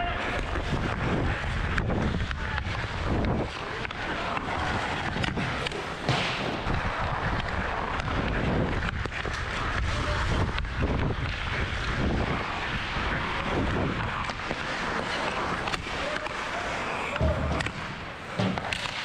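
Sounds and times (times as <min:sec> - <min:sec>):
skates scraping on ice: 0:00.0 - 0:19.0
wind on microphone: 0:00.2 - 0:05.6, 0:06.6 - 0:15.0
hockey stick clicking puck: 0:01.6 - 0:17.8, 0:18.4 - 0:19.0.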